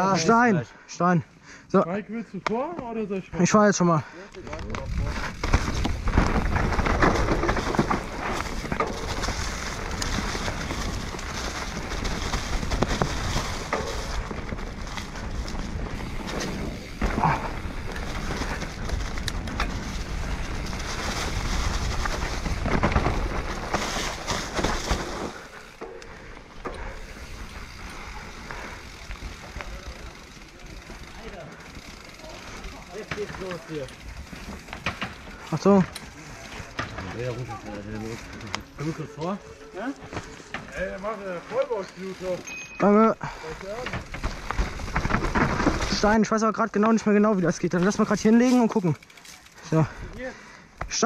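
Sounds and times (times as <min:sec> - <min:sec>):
bike rattling over ground: 0:02.6 - 0:51.0
rushing noise of bike ride: 0:03.4 - 0:51.0.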